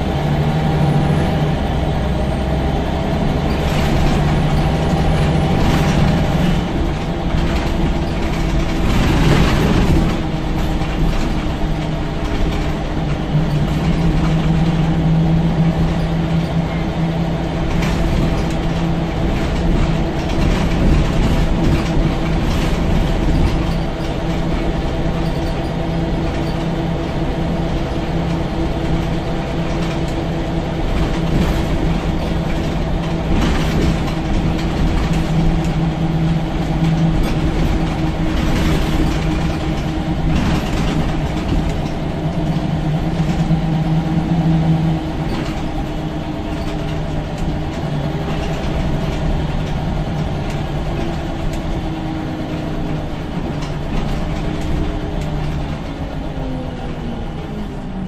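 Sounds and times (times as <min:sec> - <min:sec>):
bus body rattles and knocks: 0:00.0 - 0:58.0
bus diesel engine drone: 0:00.0 - 0:58.0.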